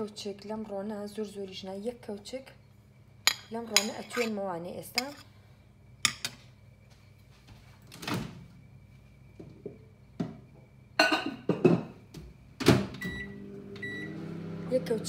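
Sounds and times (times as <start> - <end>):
microwave humming: 7.9 - 15.0.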